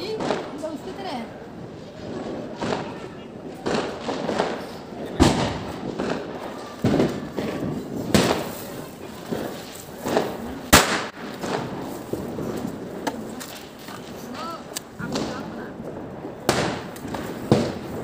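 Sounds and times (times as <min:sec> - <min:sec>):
firecrackers banging: 0:00.0 - 0:18.0.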